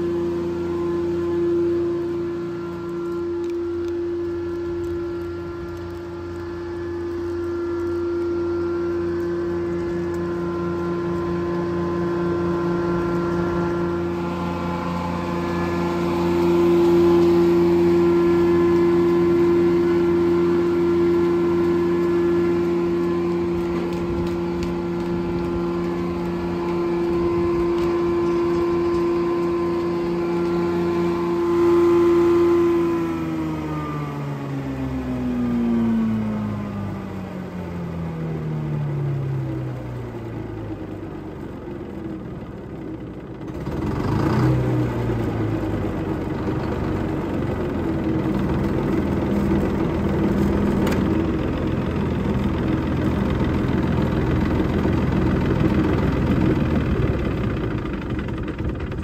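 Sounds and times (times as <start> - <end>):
sawmill hum: 0.0 - 59.0.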